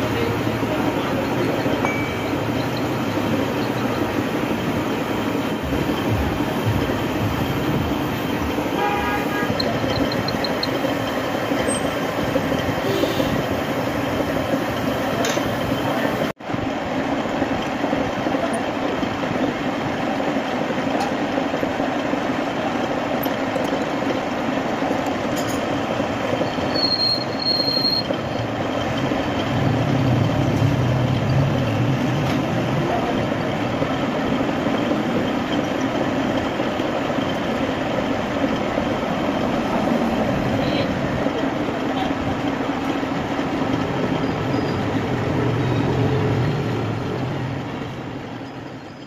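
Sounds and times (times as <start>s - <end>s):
metal lathe grinding: 0.0s - 8.8s, 9.5s - 15.0s
high squeal: 26.4s - 29.0s, 44.0s - 46.8s.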